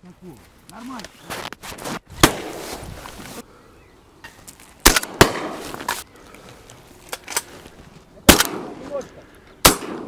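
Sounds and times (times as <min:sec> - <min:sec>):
shotgun shots: 0:02.2 - 0:02.6, 0:04.8 - 0:05.7, 0:08.3 - 0:08.8, 0:09.6 - 0:10.0.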